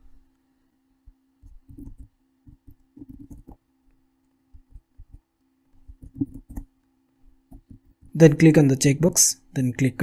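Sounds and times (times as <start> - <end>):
faint steady hum: 0.0 - 10.0
keyboard typing clicks: 1.4 - 3.6, 5.9 - 6.7.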